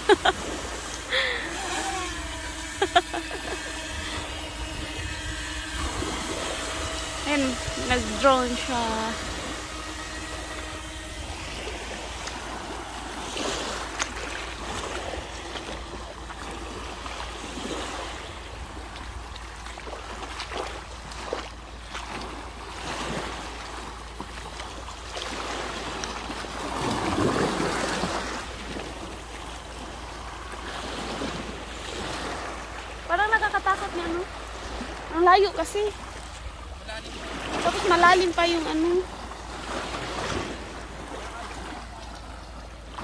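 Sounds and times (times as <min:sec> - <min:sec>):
sea surf washing ashore: 0:00.0 - 0:43.0.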